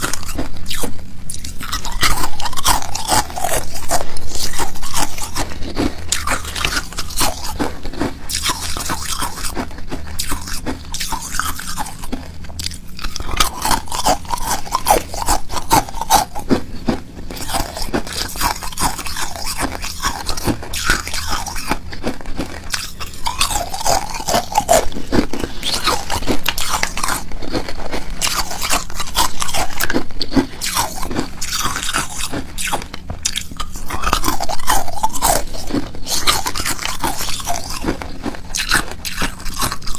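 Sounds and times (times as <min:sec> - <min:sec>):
ice cubes crunching: 0:00.0 - 0:39.9.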